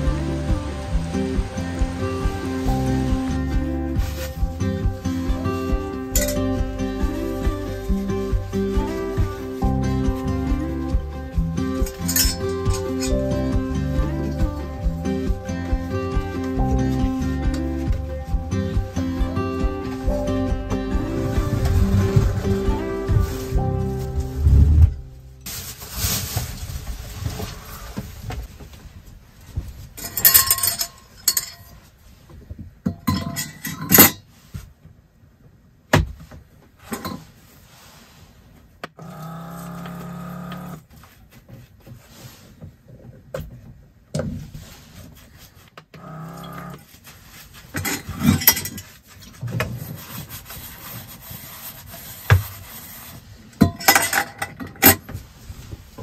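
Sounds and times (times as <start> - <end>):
water pump humming: 0.0 - 25.2
metal dishes clattering: 11.9 - 13.2, 53.6 - 55.0.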